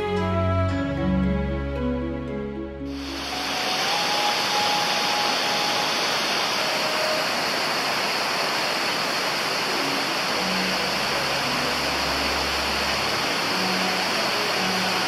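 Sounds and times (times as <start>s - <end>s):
flowing water rushing: 2.9s - 15.0s.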